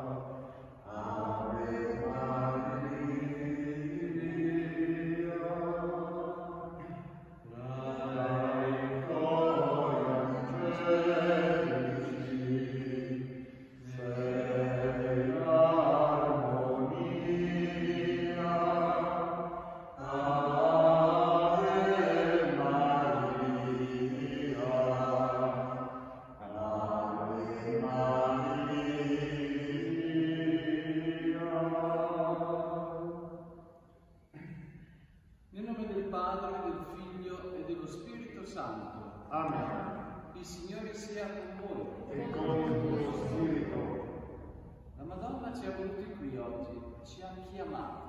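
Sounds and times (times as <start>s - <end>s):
low male voices chanting: 0.8s - 32.9s, 41.6s - 44.2s.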